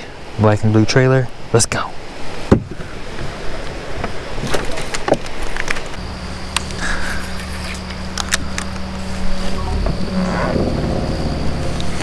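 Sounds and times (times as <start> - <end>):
steady low hum: 6.0 - 12.0.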